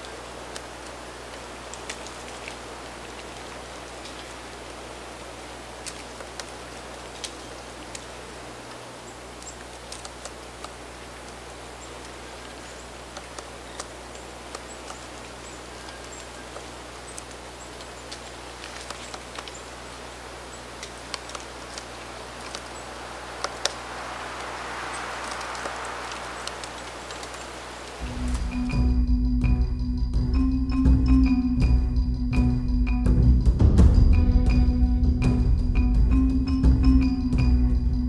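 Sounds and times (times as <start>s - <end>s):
woodpecker tapping on bark: 0.0s - 28.0s
steady hiss: 0.0s - 29.2s.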